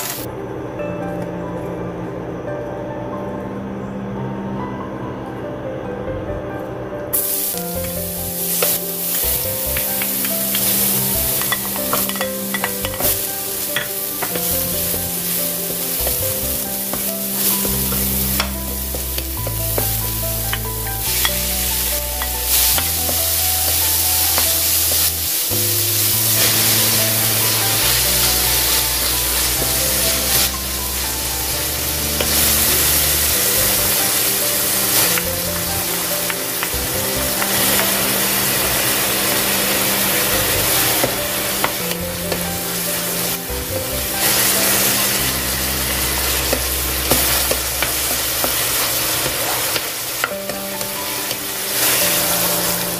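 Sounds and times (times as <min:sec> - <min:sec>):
food sizzling in hot oil: 0:07.1 - 0:52.9
background music with bass: 0:07.6 - 0:52.9
wooden spoon scraping a wok: 0:44.2 - 0:52.9.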